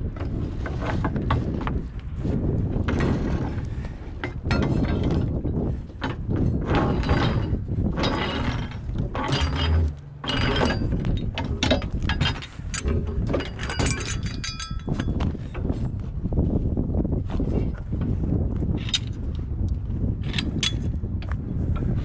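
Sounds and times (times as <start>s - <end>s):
wind buffeting microphone: 0.0s - 22.0s
metal pole rattling and clanking: 2.4s - 16.1s, 17.3s - 22.0s
metallic ringing: 13.4s - 15.2s.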